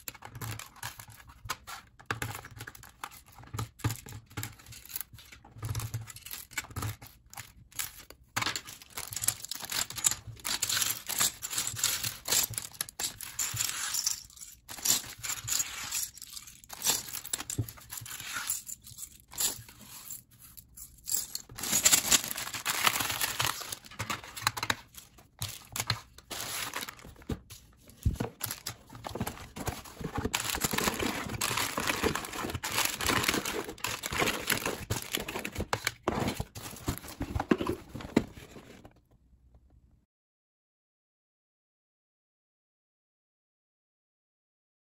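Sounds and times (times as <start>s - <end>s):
plastic pieces clicking and rattling: 0.0s - 38.0s
plastic bag crinkling: 21.4s - 37.6s
cardboard box handled: 26.3s - 38.9s.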